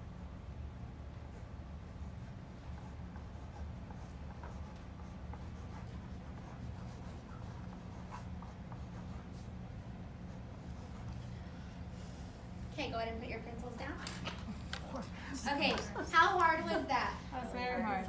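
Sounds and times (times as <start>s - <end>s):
steady low hum: 0.0s - 18.0s
pen scratching on paper: 1.3s - 9.6s.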